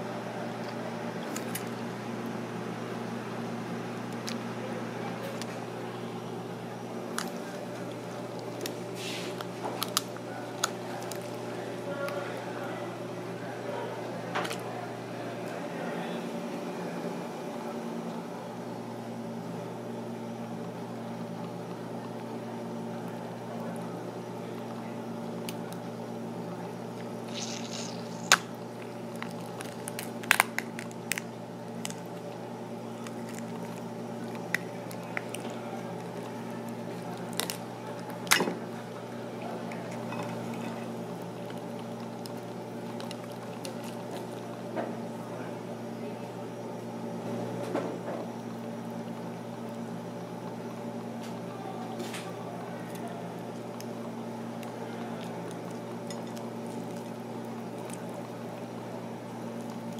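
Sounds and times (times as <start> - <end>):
steady low hum: 0.0 - 59.9
wet squelching of prawn: 27.3 - 28.5
shell cracking: 27.3 - 32.4, 33.0 - 38.5.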